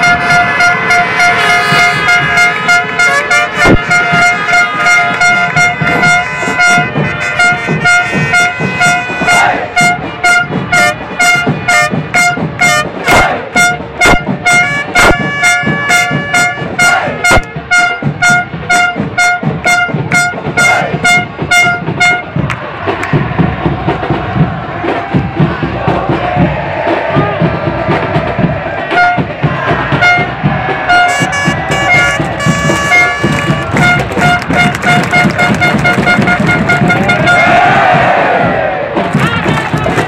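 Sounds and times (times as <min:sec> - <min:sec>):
stadium crowd chanting: 0:00.0 - 0:17.5, 0:20.1 - 0:40.0
horn blowing pulsing tone: 0:00.0 - 0:22.4, 0:28.8 - 0:29.3, 0:29.9 - 0:37.9
fast even drumbeat: 0:00.0 - 0:40.0.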